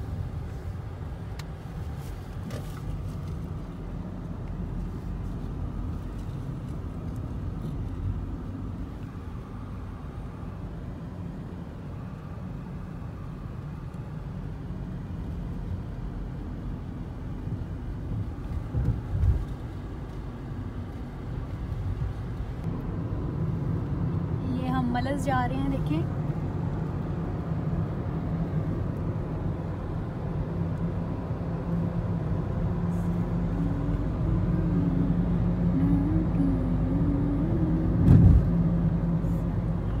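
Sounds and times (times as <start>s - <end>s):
car road and engine rumble: 0.0s - 40.0s
thump: 38.0s - 38.5s.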